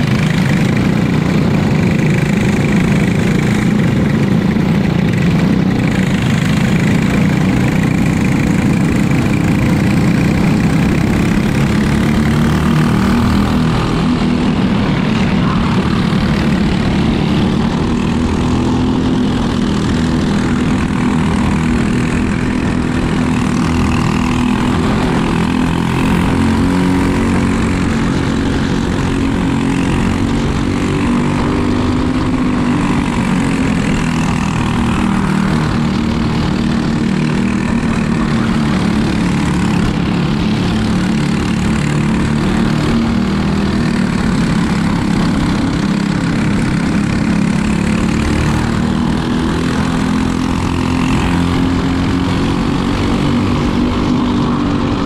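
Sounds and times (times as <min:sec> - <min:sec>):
racing kart engine running: 0:00.0 - 0:55.0.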